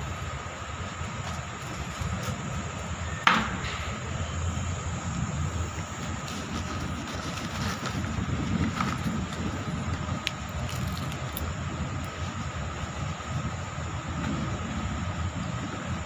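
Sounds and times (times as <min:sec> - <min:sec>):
steady low hum: 0:00.0 - 0:16.0
sharp knock: 0:03.2 - 0:04.0.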